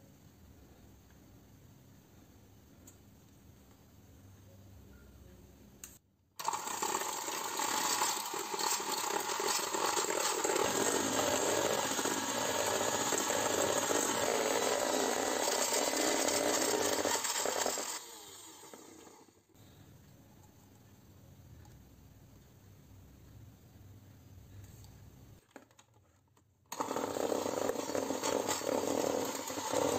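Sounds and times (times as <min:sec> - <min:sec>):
electric hand mixer running: 0:06.4 - 0:19.4, 0:26.7 - 0:29.9.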